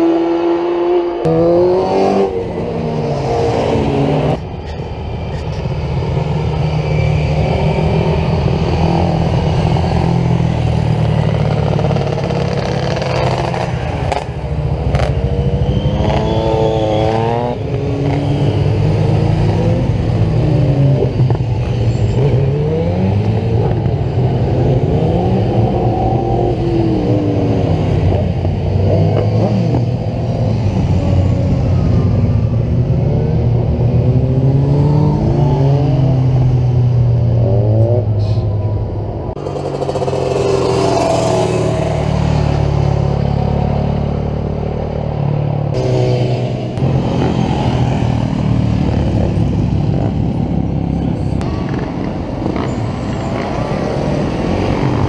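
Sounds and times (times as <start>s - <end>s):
motorcycles accelerating past: 39.4s - 55.0s.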